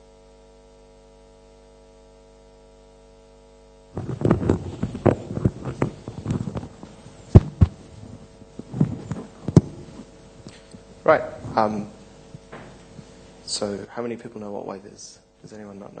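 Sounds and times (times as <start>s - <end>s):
steady electrical hum: 0.0s - 16.0s
sharp knocks: 4.0s - 10.0s
microphone handling thumps: 4.0s - 13.4s.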